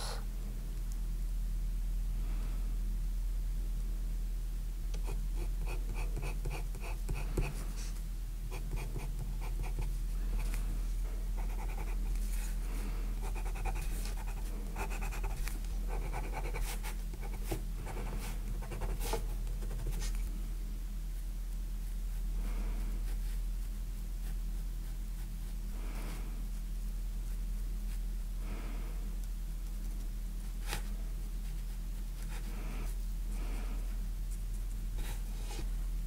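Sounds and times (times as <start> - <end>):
pencil scratching on paper: 5.0 - 7.6, 8.5 - 9.9, 11.4 - 12.2, 13.2 - 20.2.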